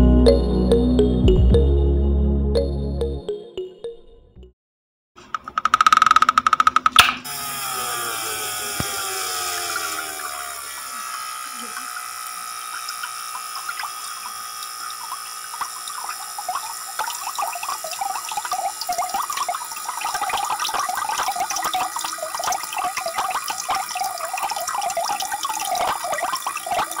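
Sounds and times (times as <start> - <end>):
water gushing and splashing: 9.4 - 27.0.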